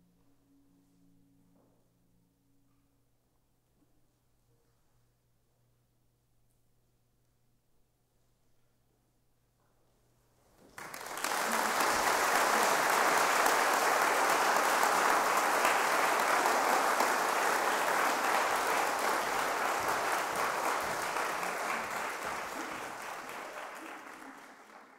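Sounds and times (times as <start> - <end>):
audience applauding: 10.7 - 24.9.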